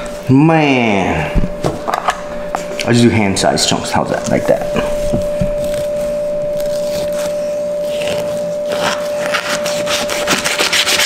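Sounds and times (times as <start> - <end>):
thin hum-like tone: 0.0 - 10.7
knife sawing through fish: 9.6 - 11.0.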